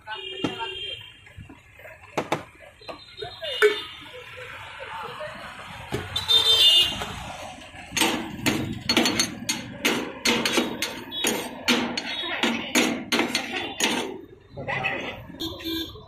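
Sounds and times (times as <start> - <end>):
cleaver chopping on metal counter: 8.0 - 14.2.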